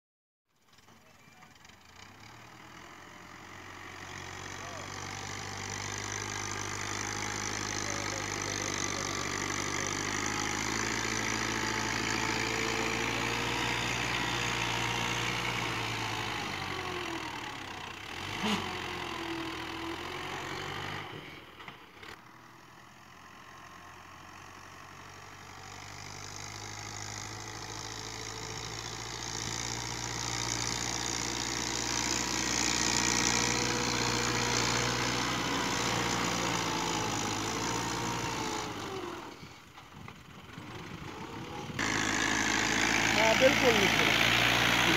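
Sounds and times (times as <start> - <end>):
tractor diesel engine running: 0.6 - 44.9.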